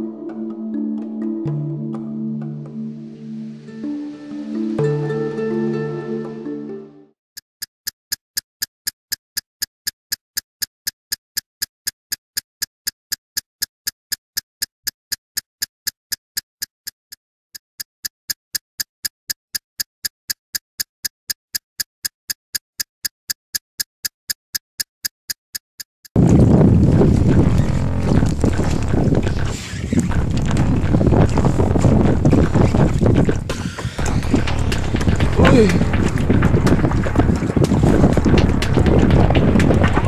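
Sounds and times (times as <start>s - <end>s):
intro music: 0.0s - 7.1s, 27.0s - 40.0s.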